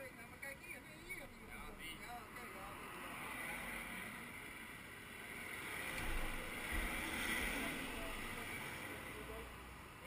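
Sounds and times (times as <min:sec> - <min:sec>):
van driving past: 0:02.7 - 0:10.0.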